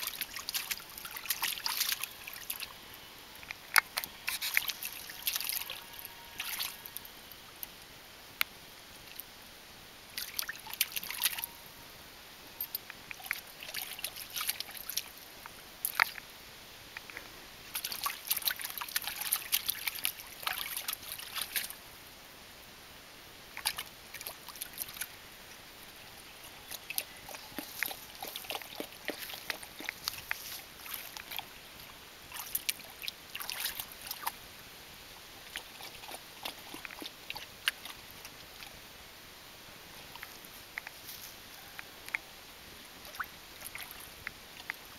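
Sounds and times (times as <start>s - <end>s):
water splashing in paddling pool: 0.0s - 2.8s, 3.5s - 7.0s, 10.2s - 11.7s, 13.1s - 16.2s, 17.7s - 21.8s, 26.4s - 34.4s, 35.4s - 38.8s, 42.9s - 44.9s.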